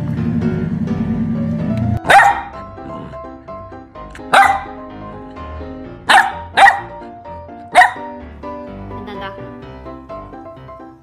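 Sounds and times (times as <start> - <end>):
background music: 0.0 - 11.0
puppy barking: 2.0 - 3.0, 4.2 - 4.8, 6.1 - 8.2.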